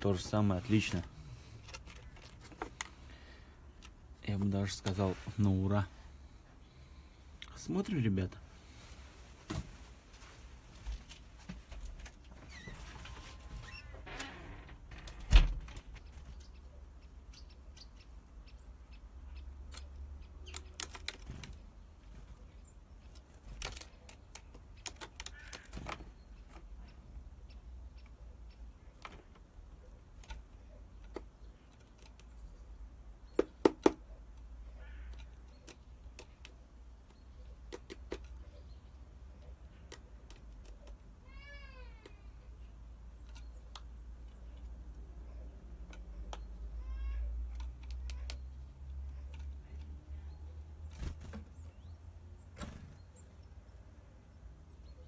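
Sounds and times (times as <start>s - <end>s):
bird tapping on plastic: 33.3s - 34.1s.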